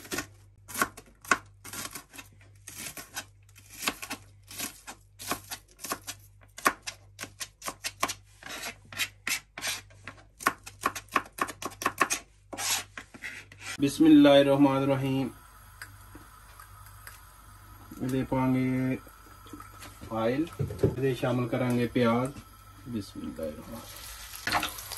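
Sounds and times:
knife slicing scrape: 7.6 - 10.1, 12.0 - 13.8
knife chopping on plastic board: 9.0 - 12.2.

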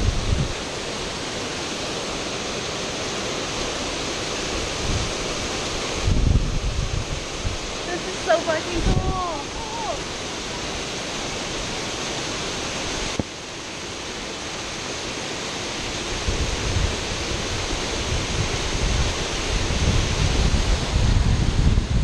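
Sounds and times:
wind buffeting microphone: 0.0 - 0.7, 4.6 - 10.2, 16.1 - 22.0
waterfall rushing: 0.0 - 22.0.

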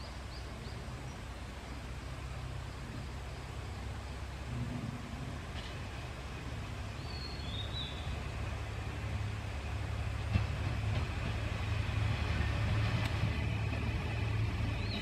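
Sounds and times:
diesel railcar engine rumble: 0.0 - 15.0
bird chirping: 7.0 - 8.2, 14.7 - 15.0.

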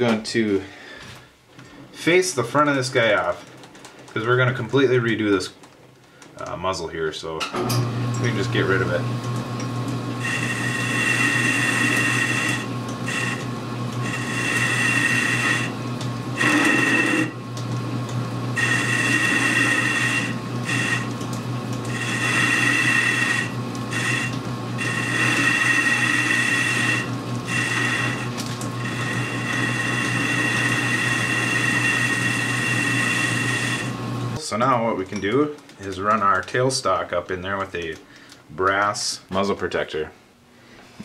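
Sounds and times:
lathe motor hum: 7.8 - 34.4
high-pitched cutting tone: 16.4 - 17.4.

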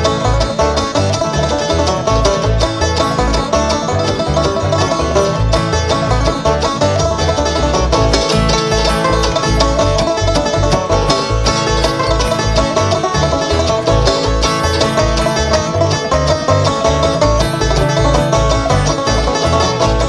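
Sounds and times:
banjo picking: 0.0 - 20.0
bass line: 0.0 - 20.0
guitar: 0.0 - 20.0.

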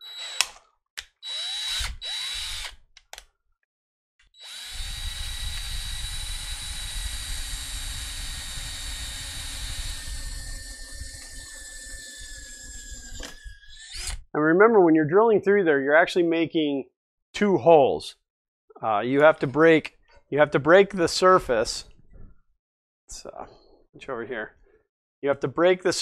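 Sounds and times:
drill bit cutting through aluminium: 0.0 - 2.8, 4.3 - 14.3
cordless drill whining: 0.0 - 2.9, 4.2 - 14.3.

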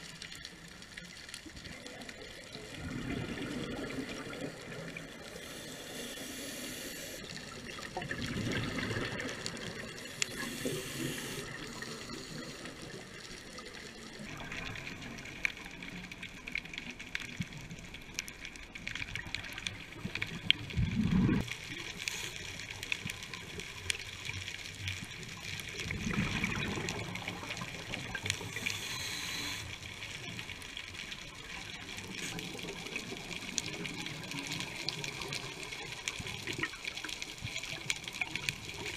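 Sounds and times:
exhaled bubbles rushing: 1.8 - 5.4, 7.2 - 15.8, 19.9 - 21.5, 25.7 - 28.7
regulator hissing inhalations: 5.4 - 7.2, 10.1 - 12.7, 28.6 - 29.6.

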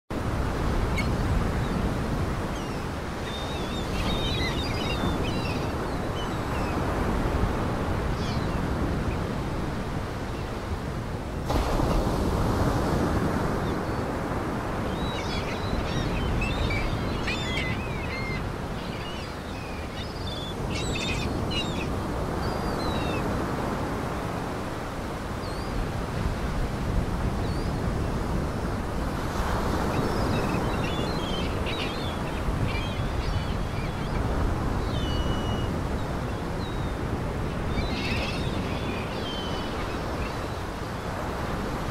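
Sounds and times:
birds chirping: 2.5 - 7.1, 14.7 - 23.4, 29.8 - 41.8.

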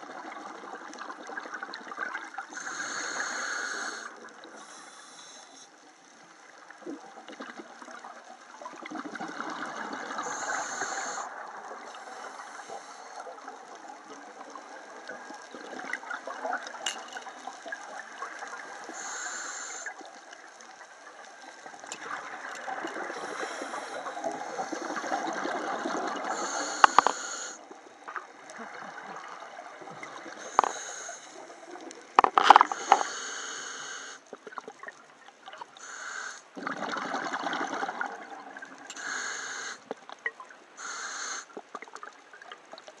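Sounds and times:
exhaled bubbles gurgling: 0.0 - 4.8, 6.5 - 33.1, 36.5 - 39.0
regulator inhale hiss: 2.5 - 6.6, 10.2 - 13.6, 18.4 - 20.8, 23.0 - 25.6, 26.2 - 27.6, 30.3 - 34.3, 35.8 - 36.6, 38.9 - 39.9, 40.8 - 41.6.

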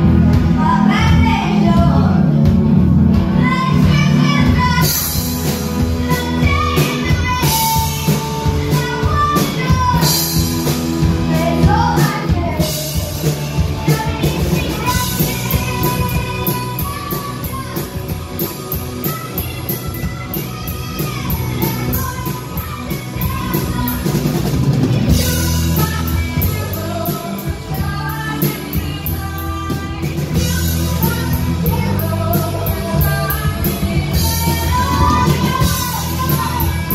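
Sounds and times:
drum kit: 0.0 - 36.9
live rock band playing: 0.0 - 36.9
person singing into microphone: 11.2 - 36.9.

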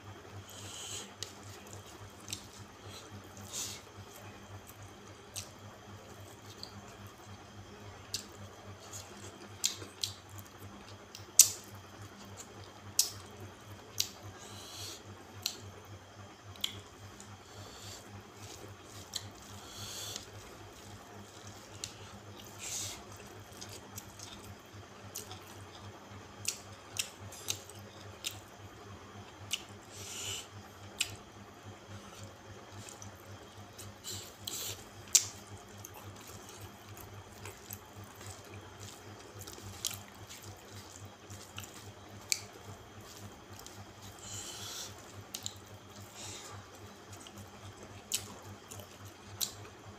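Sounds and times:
low steady hum: 0.0 - 49.9
wet chewing and lip smacks: 0.5 - 7.4, 8.0 - 14.2, 15.4 - 15.7, 16.5 - 28.6, 29.4 - 31.2, 31.9 - 49.9.

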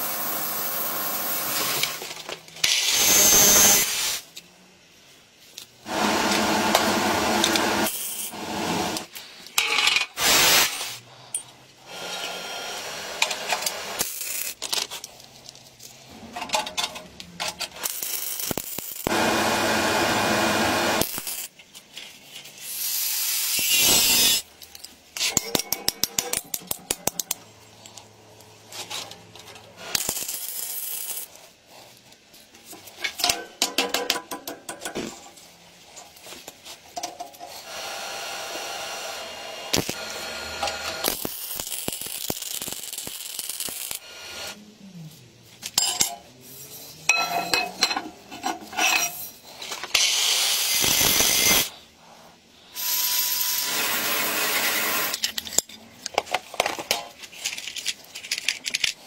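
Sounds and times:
metal parts and tools clinking: 9.4 - 10.4, 13.5 - 19.0, 23.6 - 31.4, 45.6 - 50.1, 55.0 - 59.0.

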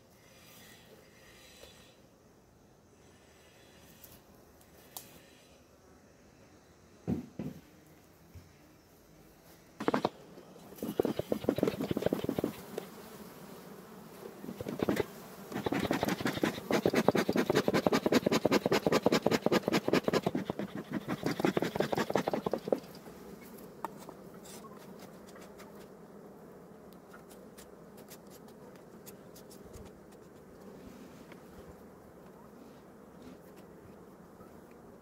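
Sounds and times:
bees buzzing: 9.8 - 35.0.

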